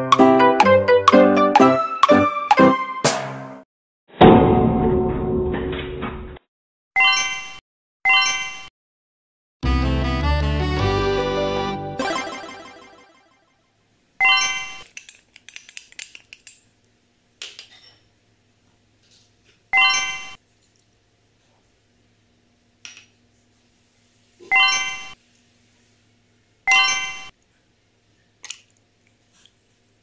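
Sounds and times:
background music: 0.0 - 3.3, 9.6 - 13.2.

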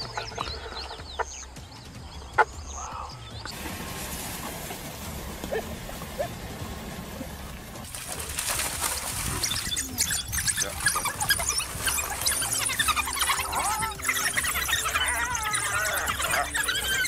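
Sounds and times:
steady outdoor hiss: 0.0 - 11.2
animals splashing in shallow water: 0.0 - 17.0.

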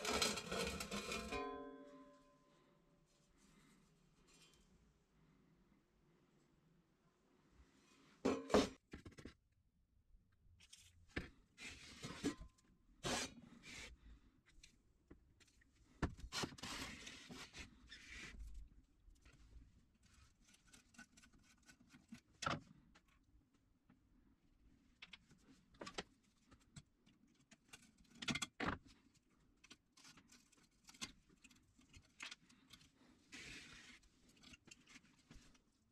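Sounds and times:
metal cover clattering on workbench: 8.3 - 8.8.

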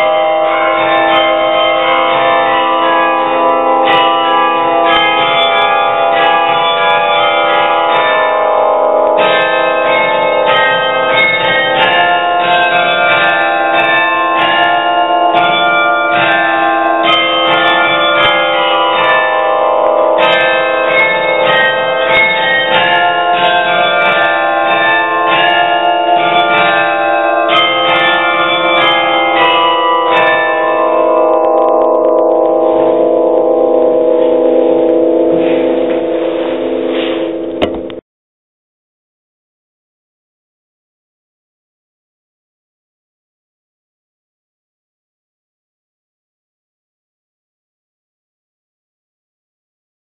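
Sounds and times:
carillon bells playing folk melody: 0.0 - 37.6.

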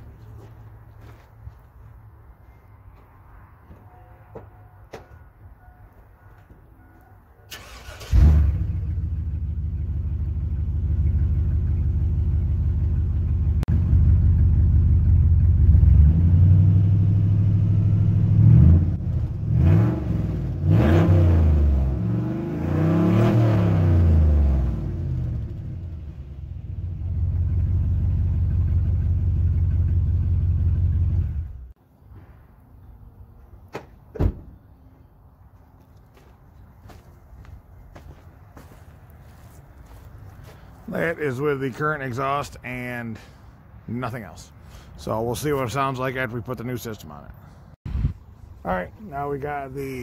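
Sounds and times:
loud engine idling and revving: 8.1 - 31.7.

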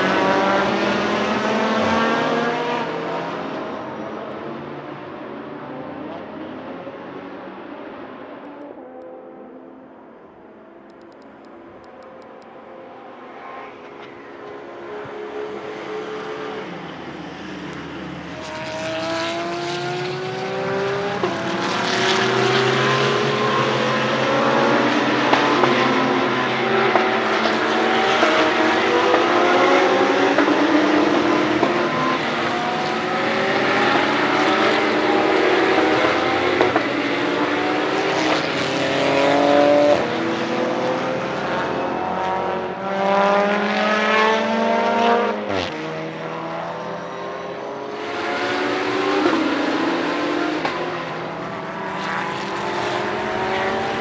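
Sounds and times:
race car engines accelerating: 0.0 - 54.0.

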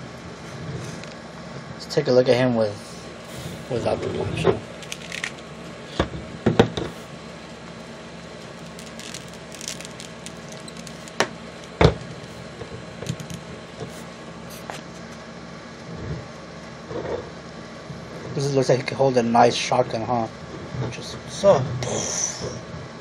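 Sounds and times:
low background hum: 0.0 - 23.0
cloth rustling: 6.9 - 12.5.

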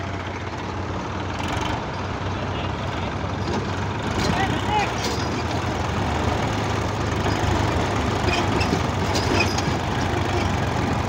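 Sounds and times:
tractor diesel engines droning: 0.0 - 11.0.

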